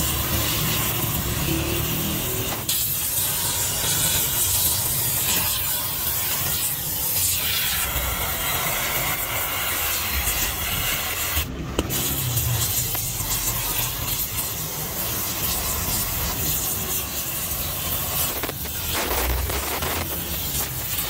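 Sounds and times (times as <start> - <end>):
welding torch flame hissing: 0.0 - 21.0.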